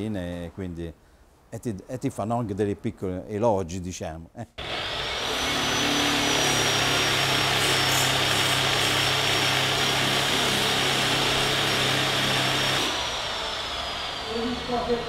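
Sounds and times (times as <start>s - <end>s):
dust extractor humming: 4.6s - 15.0s
sander whining: 4.6s - 15.0s.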